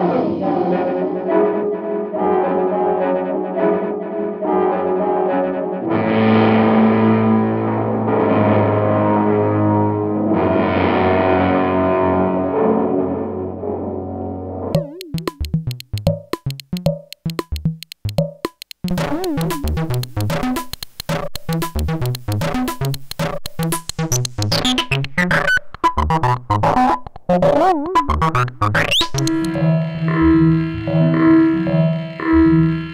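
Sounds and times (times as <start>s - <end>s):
upward synth sweep: 14.8s - 18.2s
fuzzed drum machine beat: 14.8s - 29.6s.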